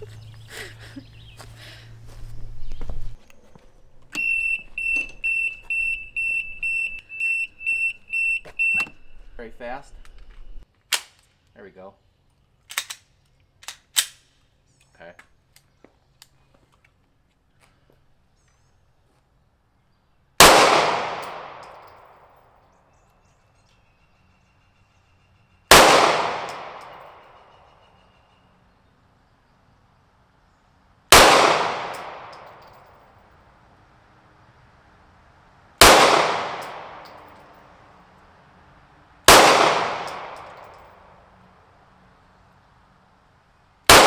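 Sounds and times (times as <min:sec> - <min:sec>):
alarm beeping high pitch: 0:04.2 - 0:09.2
pistol shots echoing: 0:20.4 - 0:22.0, 0:25.7 - 0:27.4, 0:31.1 - 0:32.8, 0:35.8 - 0:37.4, 0:39.3 - 0:41.0.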